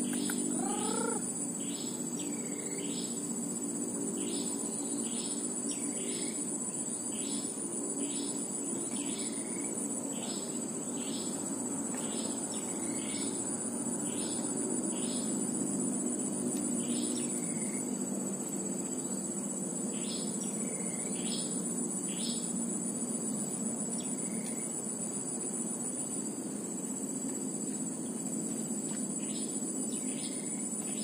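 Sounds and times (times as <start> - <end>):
bird calling: 0.0 - 1.2
crickets buzzing: 0.0 - 31.0.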